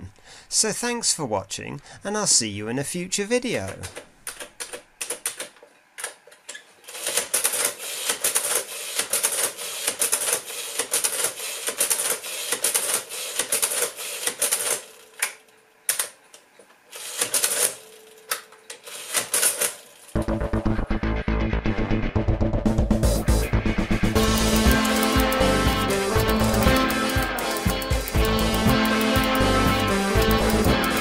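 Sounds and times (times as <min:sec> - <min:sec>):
adding machine keys tapped: 0:24.2 - 0:31.0.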